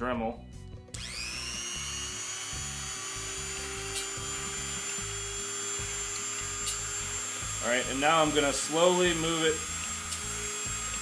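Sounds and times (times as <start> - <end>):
rotary tool high-pitched whine: 1.0 - 11.0.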